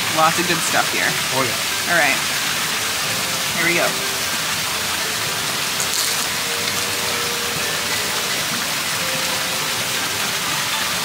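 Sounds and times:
falling water rushing: 0.0s - 11.0s.

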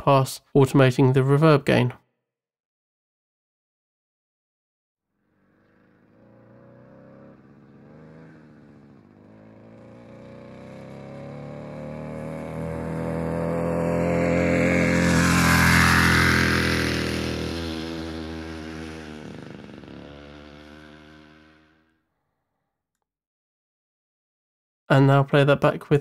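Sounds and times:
moped riding past: 5.2s - 22.0s.

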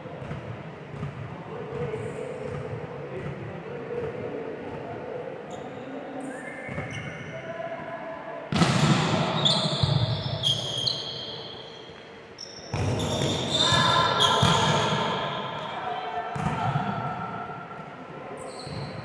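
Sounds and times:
volleyballs bouncing on court: 0.1s - 4.9s, 12.7s - 15.2s, 16.3s - 18.0s
shoe squeaks: 5.5s - 7.3s, 9.3s - 15.7s, 18.4s - 19.0s.

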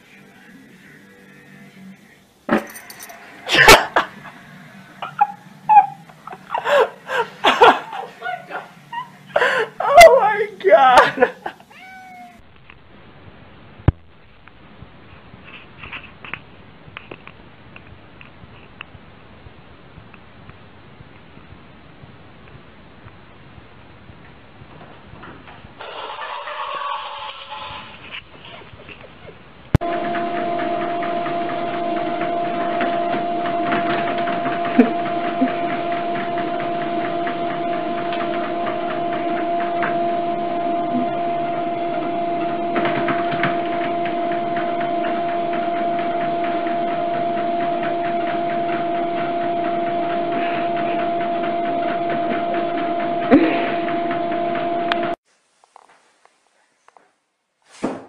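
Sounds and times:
treadmill motor whine: 2.5s - 10.3s, 29.8s - 55.2s
treadmill belt whirring: 29.8s - 55.2s.

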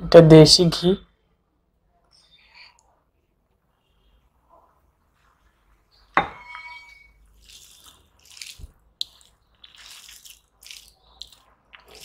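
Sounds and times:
steel bowl clinking on table: 6.2s - 7.2s
wet squelching of food mixed by hand: 7.2s - 12.0s.

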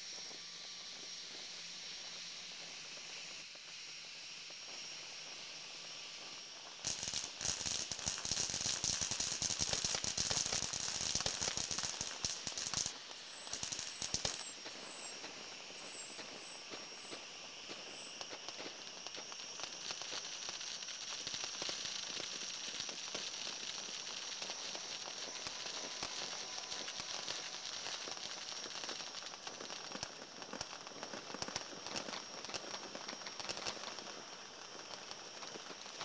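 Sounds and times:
distant fireworks popping: 4.6s - 36.0s.

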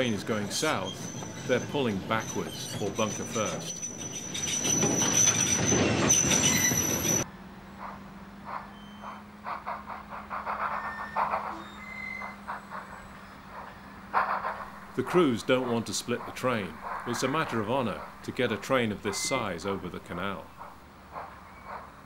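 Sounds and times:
high-pitched squeal: 0.0s - 7.2s, 10.5s - 20.7s
distant steam train working: 0.0s - 22.0s
steam locomotive passing: 0.0s - 22.0s.

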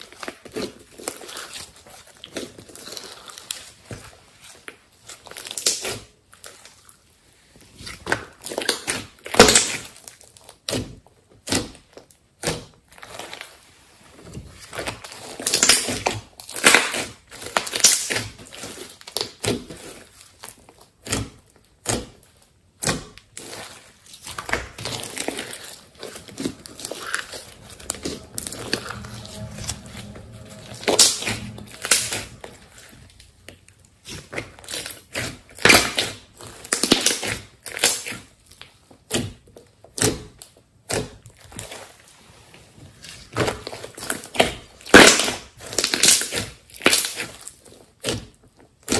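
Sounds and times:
slime squishing and crackling: 14.7s - 28.3s.

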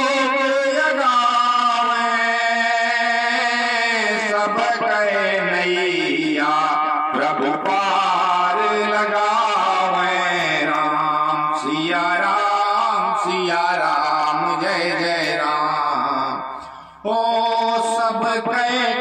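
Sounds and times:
man singing devotional chant: 0.0s - 19.0s.

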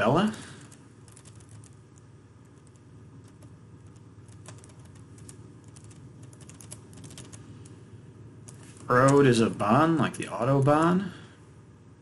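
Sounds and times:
low steady hum: 0.0s - 12.0s
keyboard keys clicking: 0.6s - 1.8s, 2.4s - 7.4s.

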